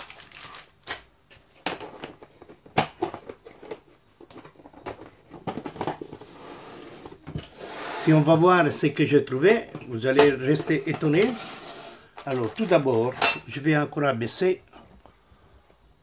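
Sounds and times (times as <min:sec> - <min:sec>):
plastic bags rustling: 0:00.0 - 0:01.0, 0:10.5 - 0:13.4.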